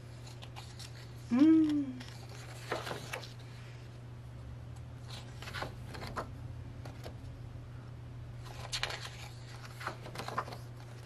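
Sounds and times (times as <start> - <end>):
low electrical hum: 0.0 - 11.0
paper pages rustling: 0.1 - 1.3, 2.0 - 3.6, 5.0 - 7.3, 8.4 - 11.0.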